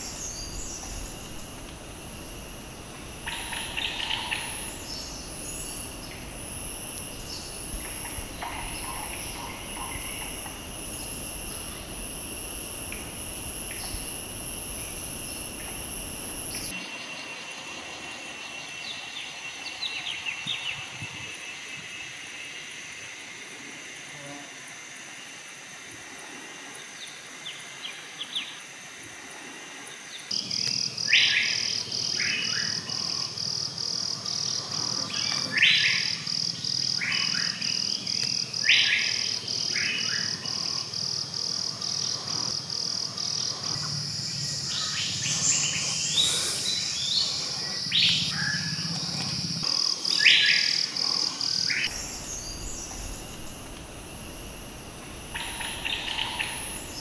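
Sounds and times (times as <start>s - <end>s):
birds calling: 0.0s - 16.8s, 43.3s - 57.0s
high pulsing chirp: 0.0s - 18.3s, 43.2s - 57.0s.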